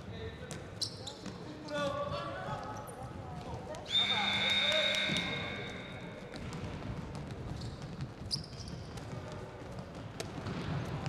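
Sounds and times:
shoe squeak: 0.7 - 2.0, 7.5 - 9.0
high whistle tone: 3.9 - 6.1
ball bouncing and slapping: 6.3 - 11.0.

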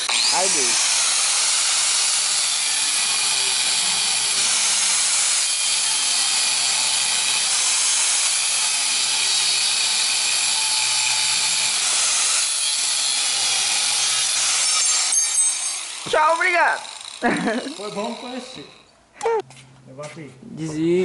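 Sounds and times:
angle grinder cutting steel: 0.0 - 18.9.

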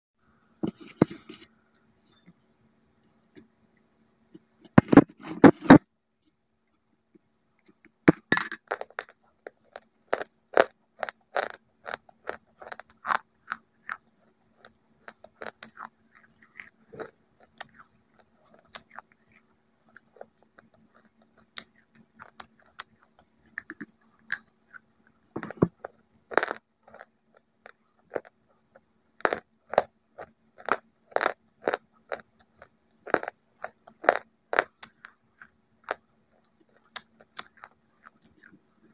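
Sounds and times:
crunchy chewing and biting: 8.7 - 38.9.

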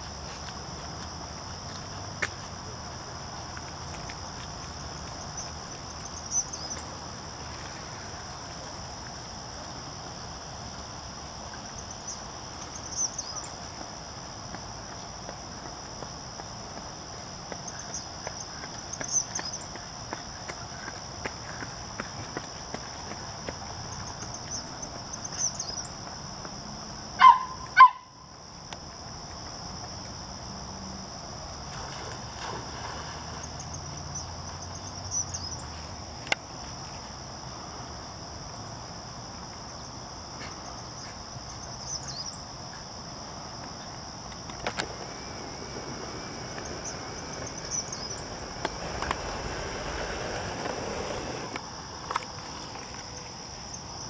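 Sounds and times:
insects chorus: 0.0 - 54.0
bird chirps: 12.9 - 13.6, 41.8 - 42.4, 46.8 - 48.3.

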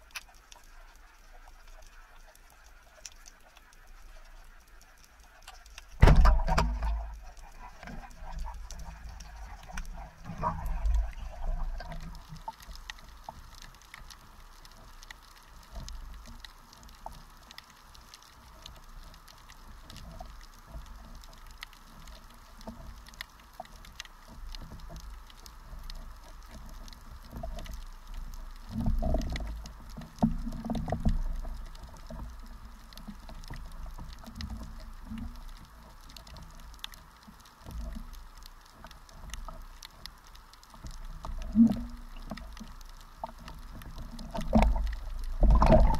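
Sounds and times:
faint underwater clicks crackling: 0.0 - 45.9
water sloshing and rumbling: 0.0 - 45.9
low wash of moving water: 5.9 - 14.2, 40.8 - 45.9.

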